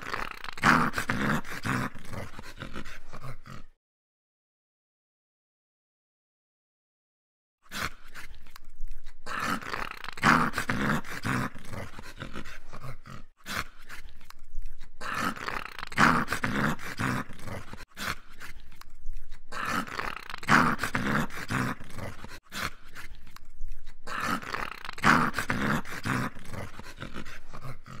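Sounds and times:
dog growling: 0.0s - 3.8s, 9.0s - 18.6s, 19.2s - 23.2s, 23.8s - 28.0s.

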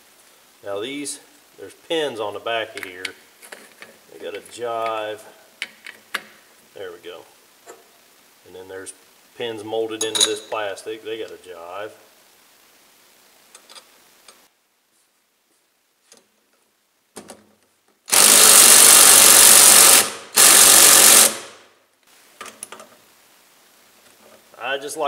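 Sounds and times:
cordless impact wrench: 18.1s - 21.6s.

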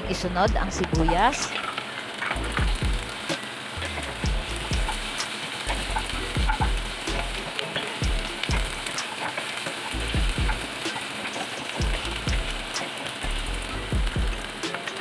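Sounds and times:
onion and garlic sizzling: 0.0s - 15.0s.

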